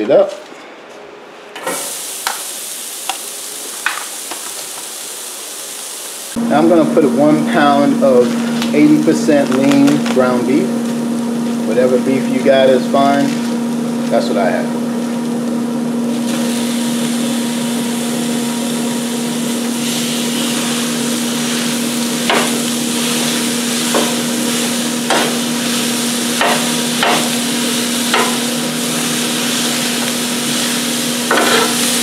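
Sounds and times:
meat and onions sizzling on griddle: 1.7 - 6.4, 15.0 - 32.0
metal spatula clanking on griddle: 26.4 - 27.4, 28.1 - 28.4, 31.3 - 31.9.

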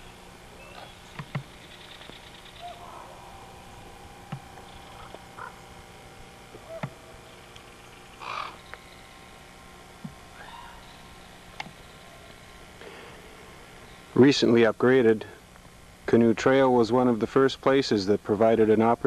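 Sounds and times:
low hum: 0.0 - 19.0
sharp clicks: 1.1 - 2.2
crow cawing: 2.4 - 5.8, 8.2 - 9.1, 10.4 - 11.0.

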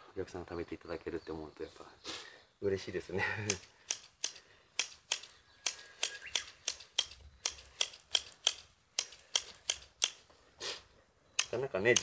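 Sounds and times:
scissors snipping sprouts: 11.4 - 12.0.

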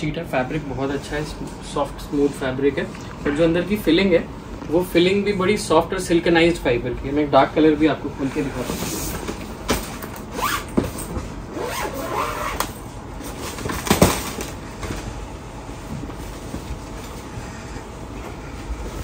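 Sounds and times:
zipper pulled open: 10.3 - 10.7, 11.5 - 12.7.

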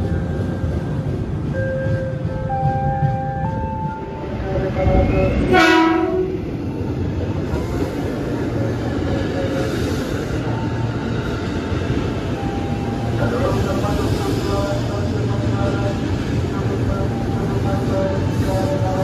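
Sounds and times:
train wheels and motors rumbling: 0.0 - 19.0
train horn blast: 4.4 - 6.4.

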